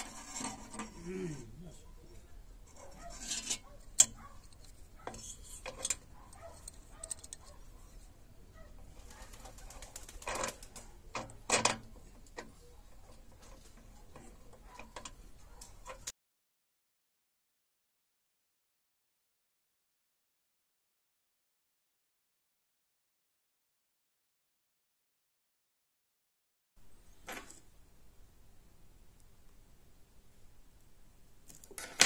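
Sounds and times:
metal parts clinking on workbench: 3.2s - 7.5s.

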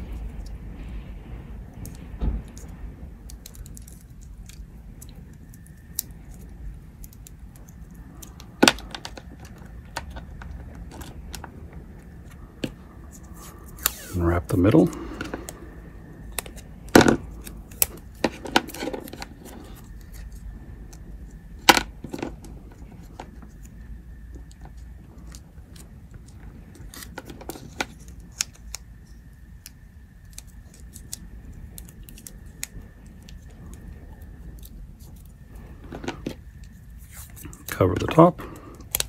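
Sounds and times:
tape pulled off roll: 8.2s - 14.2s.

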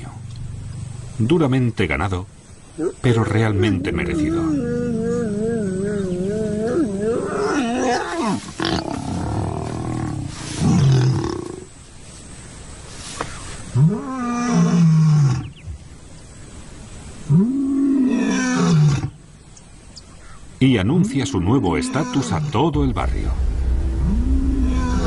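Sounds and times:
lion roaring: 2.8s - 11.6s, 22.1s - 25.0s.

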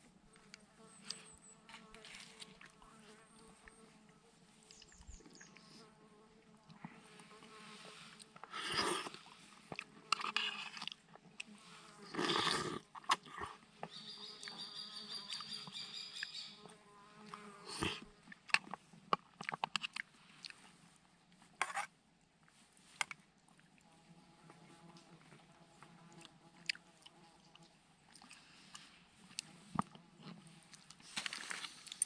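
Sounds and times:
flies and insects buzzing: 0.3s - 9.3s
loud eating noise: 8.3s - 13.6s, 17.3s - 20.1s.

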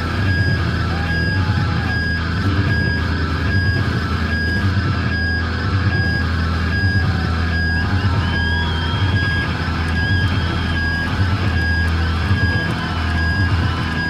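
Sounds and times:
low drone: 0.0s - 14.0s
pulsing high electronic tone: 0.0s - 14.0s.

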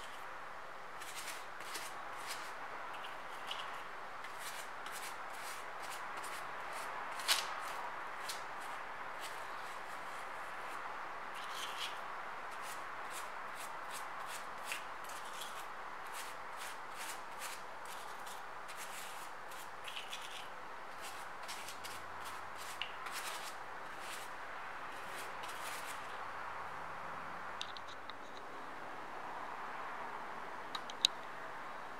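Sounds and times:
pastry brush swishing and tapping: 1.0s - 10.8s, 11.4s - 24.3s, 24.9s - 26.1s.

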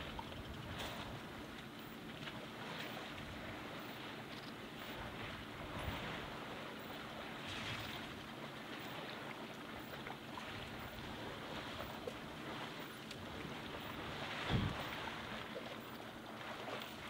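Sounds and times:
steady outdoor hiss: 0.0s - 17.0s
muddy water sloshing and splashing: 4.9s - 17.0s.

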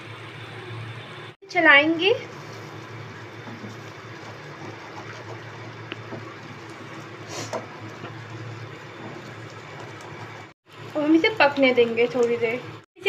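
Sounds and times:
wooden spatula scraping a pan: 2.3s - 10.5s
thick paste bubbling: 2.6s - 10.6s.

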